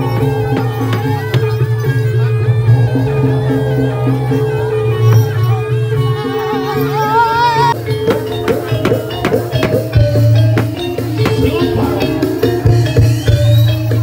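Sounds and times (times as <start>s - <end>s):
deep low hum: 0.0s - 7.1s
ringing gong tones: 0.0s - 13.2s
wavering melody line: 0.0s - 14.0s.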